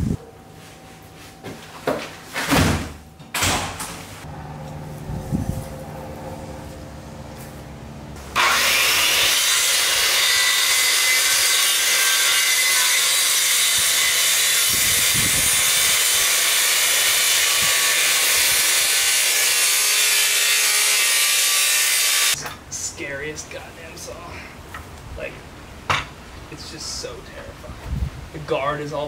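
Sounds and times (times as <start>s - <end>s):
power tool working wood: 8.2s - 22.4s.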